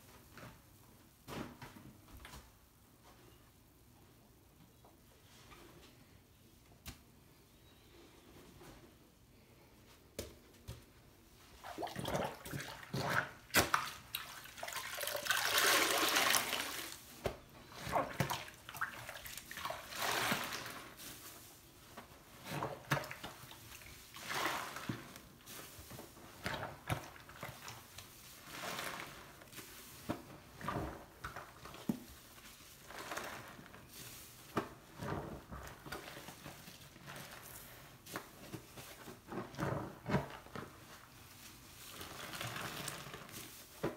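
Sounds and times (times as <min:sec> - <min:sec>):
sponge squelching: 0:11.4 - 0:43.9
water gushing from sponge: 0:11.6 - 0:17.1, 0:17.7 - 0:21.0.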